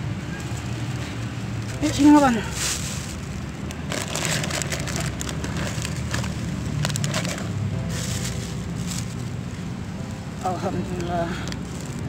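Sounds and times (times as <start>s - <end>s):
plastic bag crinkling: 1.7s - 9.5s, 10.5s - 12.0s.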